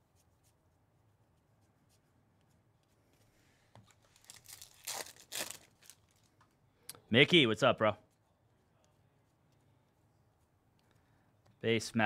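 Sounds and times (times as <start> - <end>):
foil wrapper crinkling and tearing: 3.9 - 6.3.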